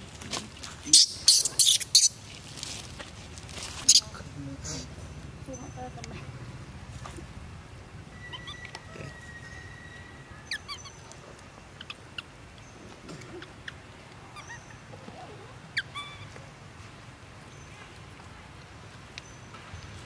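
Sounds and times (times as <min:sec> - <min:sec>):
animal chirps and squeaks: 0:00.9 - 0:02.2, 0:03.8 - 0:04.2, 0:08.1 - 0:11.2, 0:11.8 - 0:16.4.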